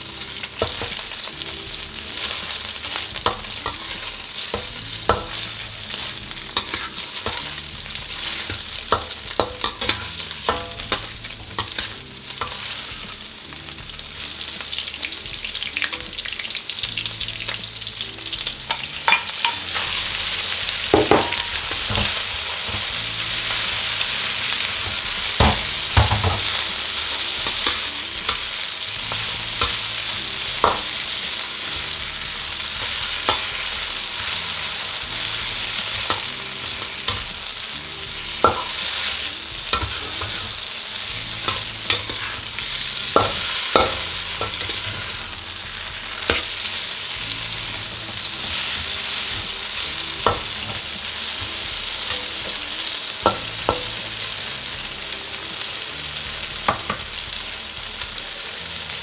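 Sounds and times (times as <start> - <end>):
food sizzling in a wok: 0.0 - 59.0
metal spatula scraping a pan: 0.2 - 13.3, 38.1 - 54.2.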